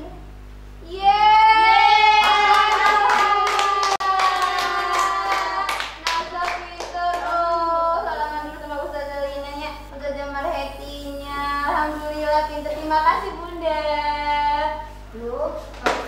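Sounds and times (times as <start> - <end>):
hands clapping: 2.2 - 7.4.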